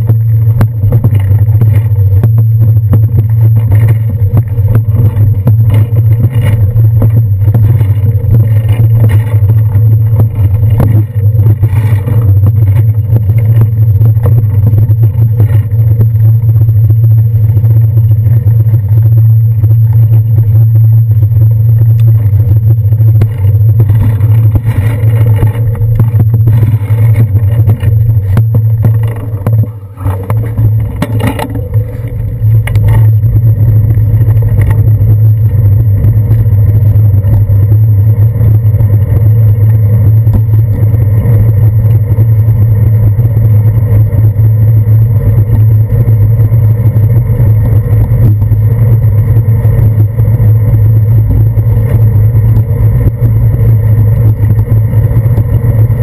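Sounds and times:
loud low hum: 0:00.0 - 0:56.0
small rattles and knocks: 0:23.1 - 0:35.6.

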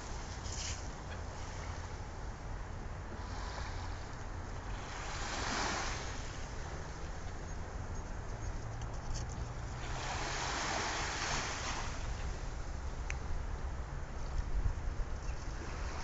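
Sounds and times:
waves washing onto beach: 0:00.0 - 0:07.9, 0:09.6 - 0:16.0
wind buffeting microphone: 0:10.6 - 0:16.0.

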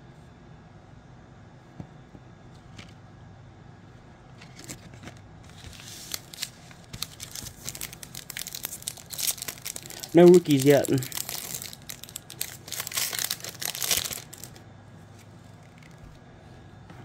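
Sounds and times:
faint room hum: 0:00.0 - 0:17.0
plastic packaging crinkling: 0:05.5 - 0:14.6.

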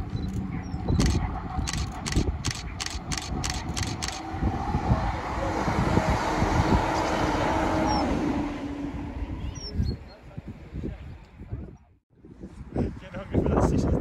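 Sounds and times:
sharp clicks: 0:00.2 - 0:04.2
diesel train passing: 0:01.2 - 0:09.5.

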